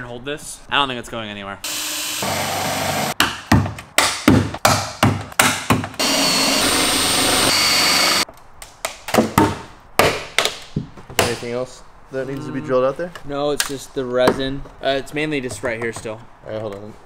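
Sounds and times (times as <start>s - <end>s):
cordless drill cutting metal: 1.7s - 3.1s, 6.0s - 8.2s.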